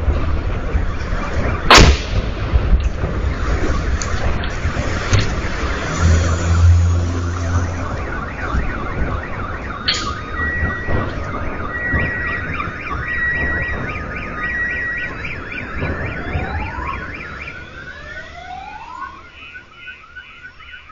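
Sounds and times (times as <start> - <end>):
sharp crack: 0.0 - 14.4
low rumble of explosion: 0.0 - 18.0
car alarms warbling and wailing: 0.1 - 20.9
on-off beeping tone: 5.7 - 8.5.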